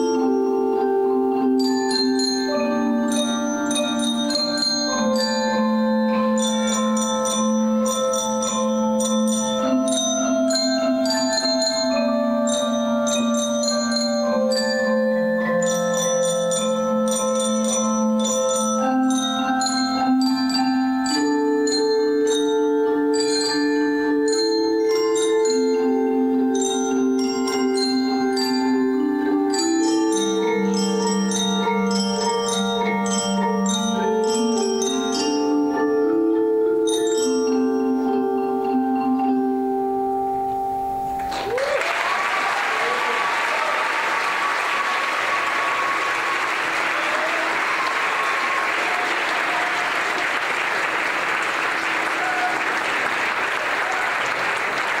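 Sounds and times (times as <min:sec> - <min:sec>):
wooden xylophones playing: 0:00.0 - 0:41.5
audience applause: 0:41.2 - 0:55.0.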